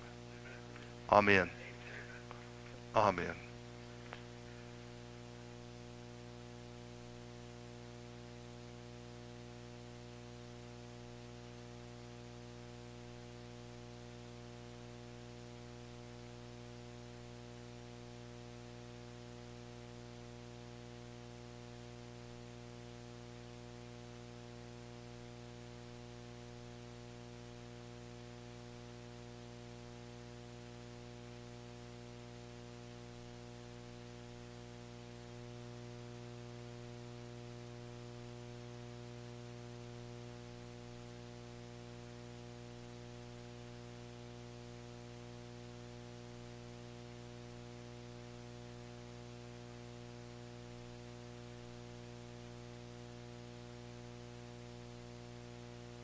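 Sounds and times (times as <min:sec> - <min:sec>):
faint electrical hum: 0:00.0 - 0:56.0.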